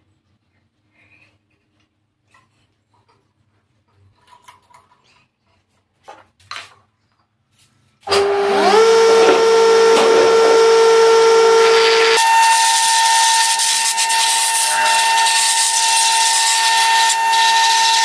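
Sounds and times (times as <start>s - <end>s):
wood lathe motor whine: 8.1s - 18.0s.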